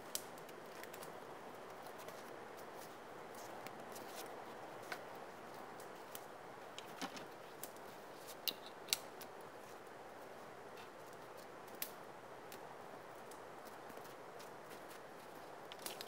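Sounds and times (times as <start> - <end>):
faint outdoor hiss: 0.0 - 16.0.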